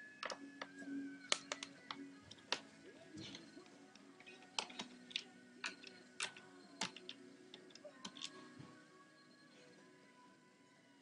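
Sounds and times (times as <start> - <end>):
screwdriver clicks and taps: 4.6 - 8.4.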